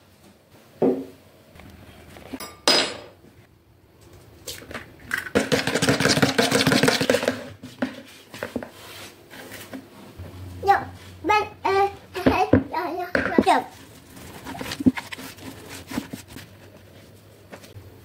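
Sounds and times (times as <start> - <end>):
eggs beaten in plastic bowl: 5.1 - 8.7, 12.2 - 17.8.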